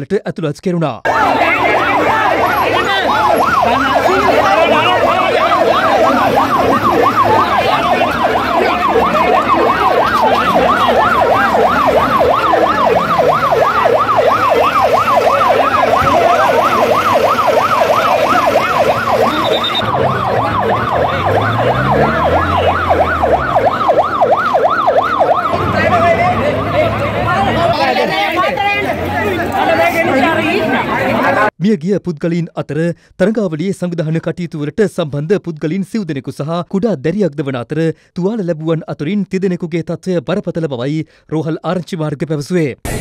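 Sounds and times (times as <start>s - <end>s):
siren yelping: 1.1s - 28.6s.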